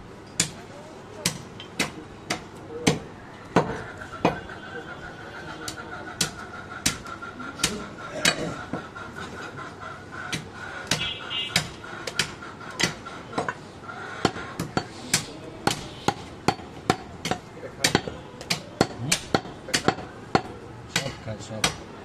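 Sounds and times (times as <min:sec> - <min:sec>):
knife chopping meat on wooden block: 0:05.7 - 0:08.4, 0:10.3 - 0:13.5, 0:14.2 - 0:21.9.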